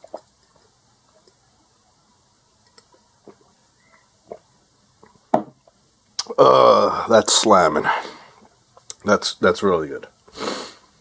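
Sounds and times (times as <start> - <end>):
person gulping water: 0.0 - 1.4, 2.6 - 3.6, 4.2 - 7.1
glass knocking on table: 5.3 - 5.6.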